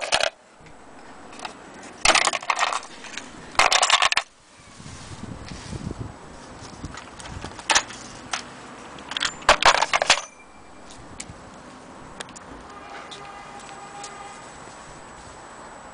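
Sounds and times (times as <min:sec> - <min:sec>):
metal parts clinking: 0:00.0 - 0:00.4, 0:01.0 - 0:04.3, 0:06.9 - 0:11.2.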